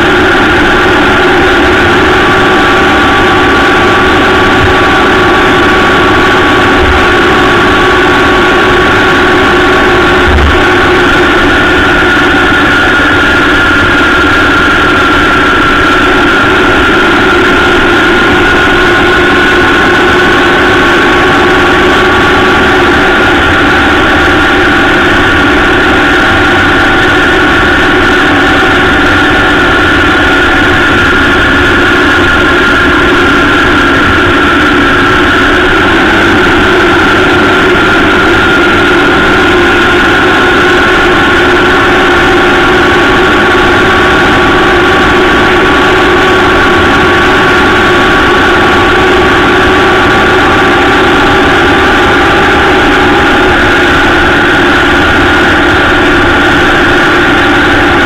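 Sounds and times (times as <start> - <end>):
motorcycle engine running: 0.0 - 58.0
road and wind noise: 0.0 - 58.0.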